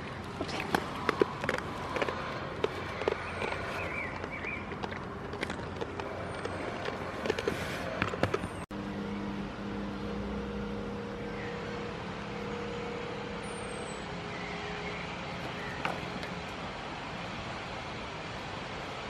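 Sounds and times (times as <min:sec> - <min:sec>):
low hum of held tones: 0:08.7 - 0:16.7.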